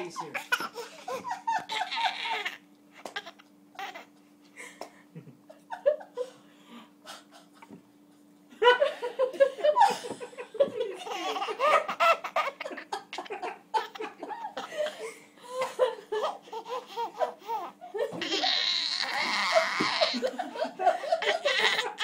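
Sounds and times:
baby laughing: 0.0s - 4.2s, 11.0s - 14.7s, 16.1s - 22.0s.

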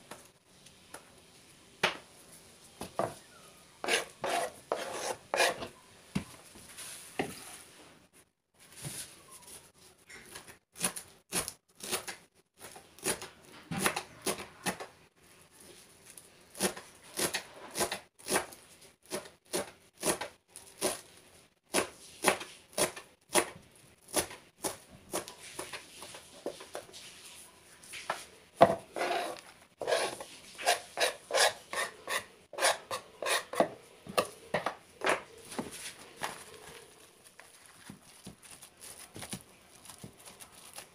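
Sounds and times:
knife chopping on cutting board: 3.8s - 5.7s.

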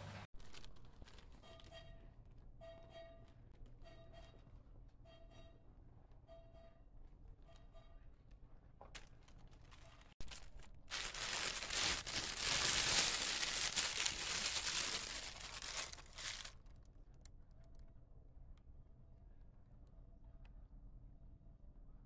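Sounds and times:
plastic bag crinkling: 0.4s - 1.4s, 9.2s - 16.8s.

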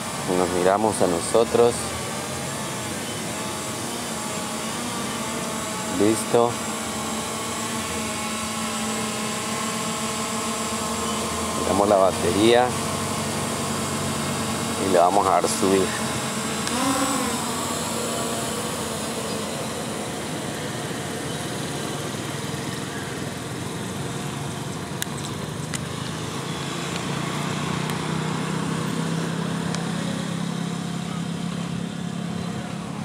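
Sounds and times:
low hum: 0.0s - 23.2s
drone propellers buzzing: 0.0s - 33.0s.

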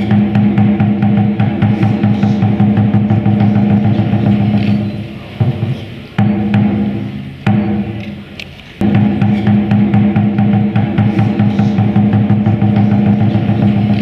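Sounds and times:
loud drum strike: 0.0s - 8.0s, 8.8s - 14.0s
fast drum roll: 8.8s - 14.0s.

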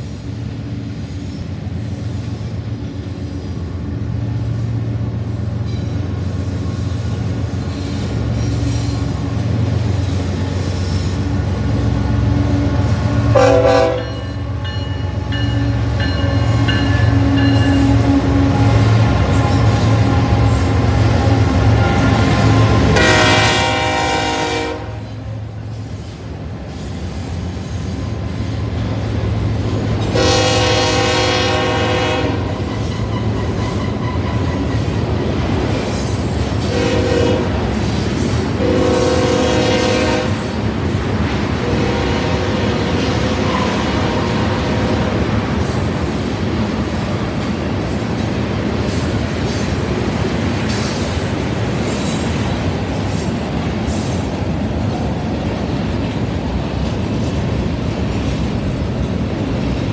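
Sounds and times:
freight train rumbling past: 0.0s - 59.9s
locomotive air horn: 13.1s - 25.4s, 30.0s - 34.1s, 36.6s - 37.7s, 38.6s - 40.5s, 41.6s - 45.0s.

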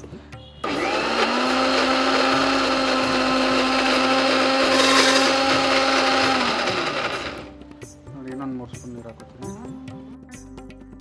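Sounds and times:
mixer grinder motor whirring: 0.6s - 7.5s.

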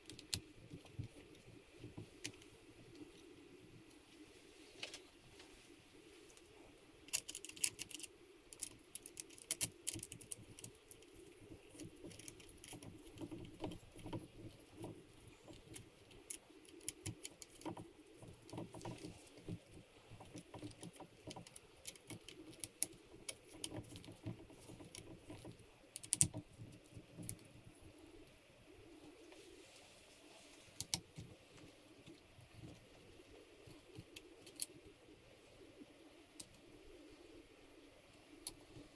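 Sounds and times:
small metallic clicks: 7.1s - 11.2s, 11.8s - 27.5s.

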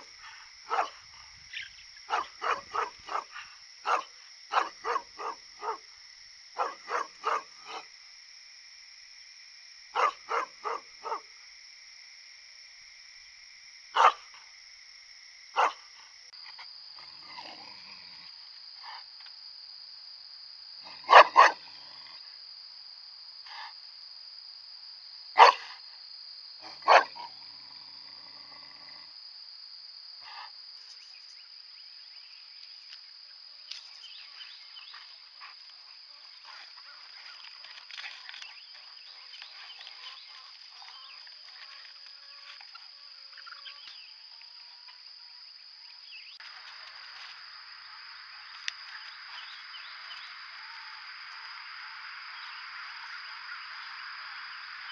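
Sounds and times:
dog barking: 0.7s - 1.0s, 2.1s - 5.8s, 6.6s - 7.8s, 10.0s - 11.3s, 14.0s - 14.2s, 15.6s - 15.8s, 20.9s - 21.7s, 25.4s - 25.8s, 26.6s - 27.3s.

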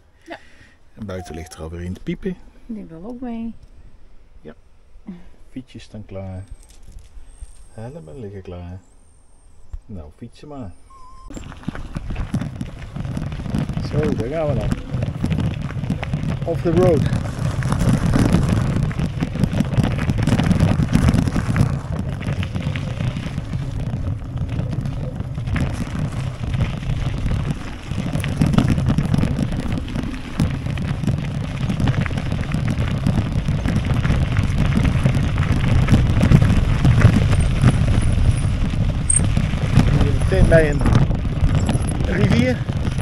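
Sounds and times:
bicycle rumbling on unpaved track: 0.0s - 2.6s, 6.1s - 43.0s
wind buffeting microphone: 10.9s - 43.0s.

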